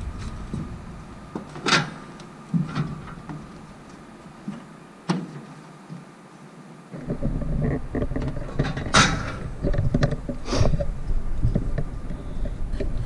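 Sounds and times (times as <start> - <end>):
clunks and knocks on metal railing: 8.0 - 10.4.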